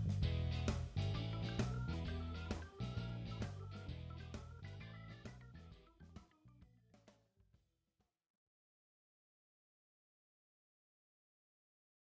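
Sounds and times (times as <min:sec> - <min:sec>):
faint background music: 0:00.0 - 0:07.2.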